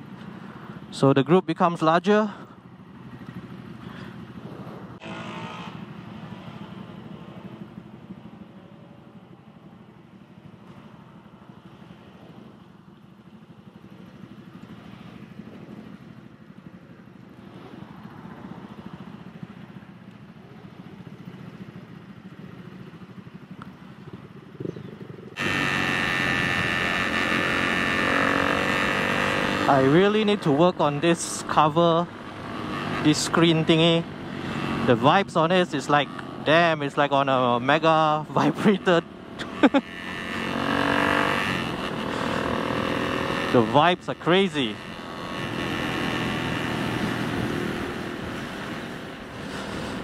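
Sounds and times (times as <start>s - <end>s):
motorcycle engine running: 0.0s - 50.0s
loud harsh noise: 5.0s - 5.8s, 25.4s - 29.6s.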